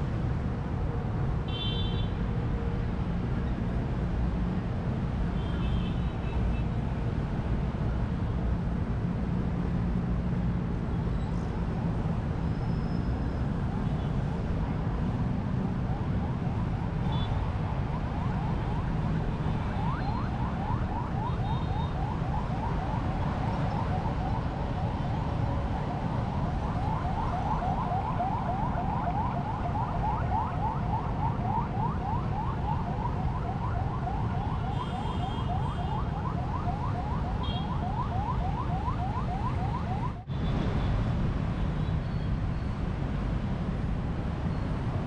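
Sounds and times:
electronic siren sweeping: 0:17.5 - 0:40.3.

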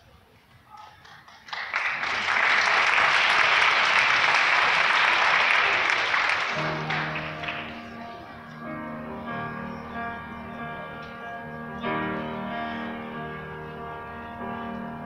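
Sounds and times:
audience applauding: 0:00.6 - 0:08.7
instrumental music: 0:06.6 - 0:15.0.

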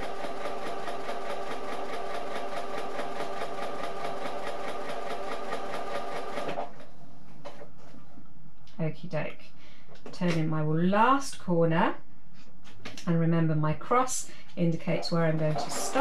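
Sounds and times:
sewing machine running: 0:00.0 - 0:06.8, 0:15.3 - 0:16.0.

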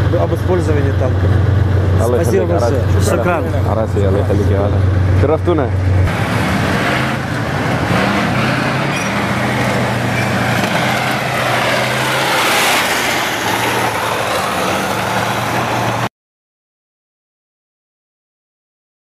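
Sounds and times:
tank diesel engines running: 0:00.0 - 0:16.1
tank tracks rolling: 0:06.1 - 0:16.1.

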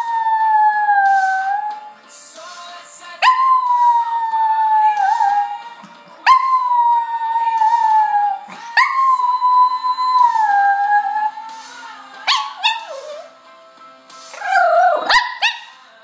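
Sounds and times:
dog howling: 0:00.0 - 0:01.9, 0:03.2 - 0:11.5, 0:12.3 - 0:13.3, 0:14.4 - 0:15.6
music: 0:00.0 - 0:16.0.

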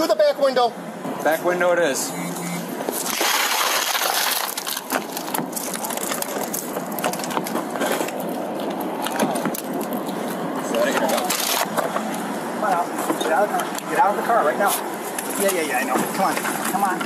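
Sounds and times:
car window glass smashing: 0:02.9 - 0:07.6
shattered glass crackling and falling: 0:03.0 - 0:07.3.

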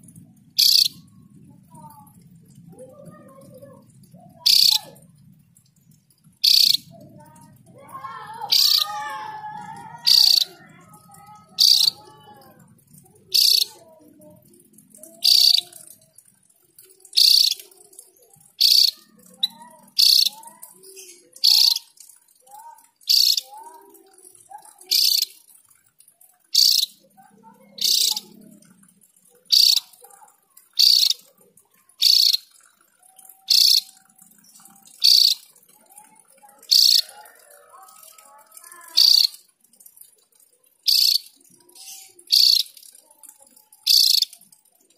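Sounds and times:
soft low bird chirps: 0:00.1 - 0:07.5, 0:10.0 - 0:12.2, 0:13.3 - 0:13.8, 0:15.1 - 0:16.1, 0:17.0 - 0:23.5, 0:26.2 - 0:28.6, 0:29.4 - 0:30.0, 0:32.0 - 0:32.9, 0:33.5 - 0:35.5, 0:40.6 - 0:43.0
bird sharp high calls: 0:00.6 - 0:01.0, 0:04.4 - 0:05.0, 0:06.4 - 0:06.9, 0:08.4 - 0:09.1, 0:10.0 - 0:10.6, 0:11.5 - 0:12.2, 0:13.3 - 0:13.8, 0:15.2 - 0:15.7, 0:17.1 - 0:17.7, 0:18.6 - 0:20.4, 0:21.4 - 0:22.0, 0:23.1 - 0:23.4, 0:24.9 - 0:25.4, 0:26.5 - 0:27.0, 0:27.8 - 0:28.4, 0:29.5 - 0:30.0, 0:30.7 - 0:31.2, 0:32.0 - 0:32.6, 0:33.5 - 0:34.0, 0:34.9 - 0:35.4, 0:36.7 - 0:37.1, 0:39.0 - 0:39.4, 0:40.9 - 0:42.8, 0:43.9 - 0:44.3.

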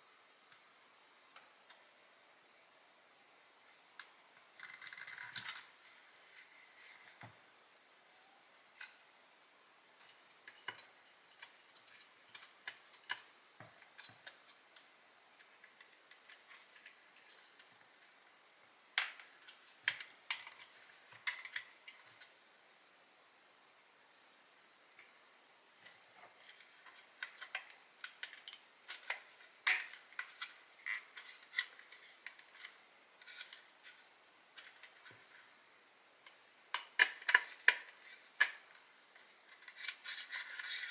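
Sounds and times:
scraping rustle: 0:04.7 - 0:07.4.

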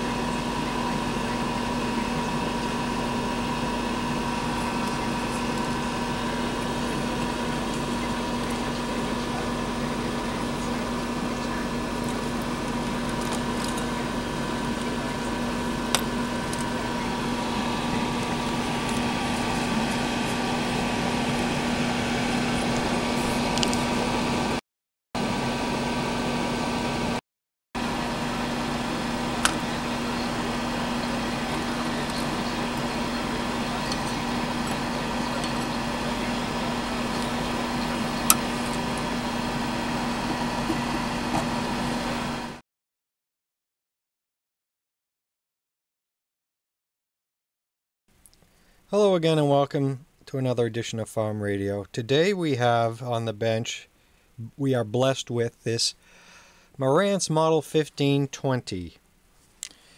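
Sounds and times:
high machine whine: 0:00.0 - 0:24.6, 0:25.2 - 0:27.2, 0:27.8 - 0:42.6
machine hum: 0:00.0 - 0:24.6, 0:25.2 - 0:27.2, 0:27.8 - 0:42.6.

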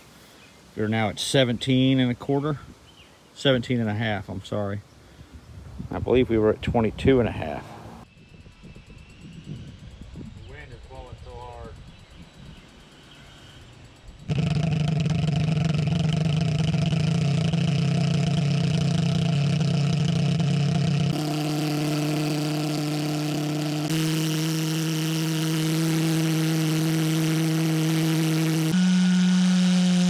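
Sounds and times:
pulse jet engine buzzing drone: 0:07.8 - 0:30.0.

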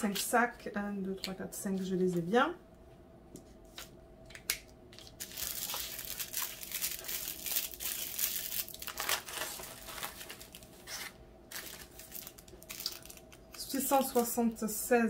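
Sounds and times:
plastic bags crinkling: 0:05.0 - 0:14.4.

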